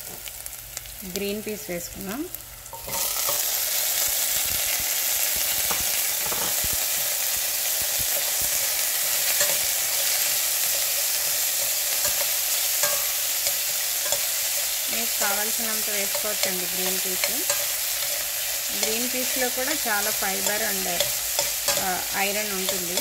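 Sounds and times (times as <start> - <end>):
peas sizzling in hot oil: 0.0 - 23.0
scraping in a pan: 2.7 - 3.6, 5.7 - 6.7.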